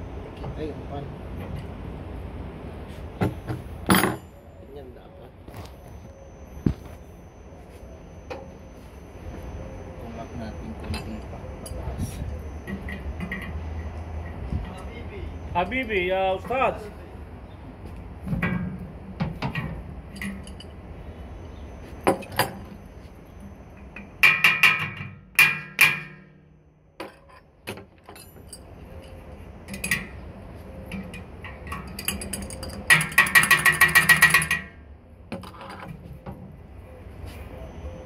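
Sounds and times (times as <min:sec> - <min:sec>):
metal tool tapping fan blade: 0:30.9 - 0:34.8.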